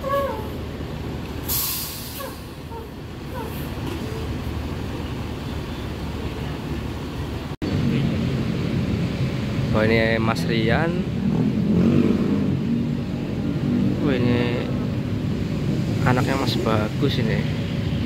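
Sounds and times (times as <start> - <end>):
diesel bus engine idling: 0.0 - 11.1
air brake hiss: 1.5 - 2.6.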